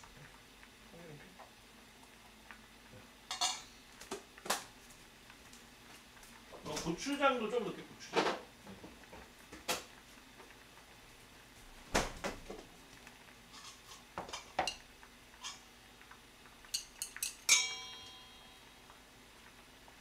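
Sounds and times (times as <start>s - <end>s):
kitchen utensils clinking: 3.3s - 3.8s, 13.5s - 15.7s, 16.7s - 18.6s
utensil striking metal bowl: 16.7s - 18.6s.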